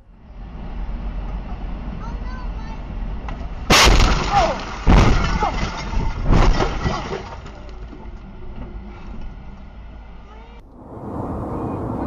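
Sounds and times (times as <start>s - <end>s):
car crash metal crunching: 3.6s - 8.6s.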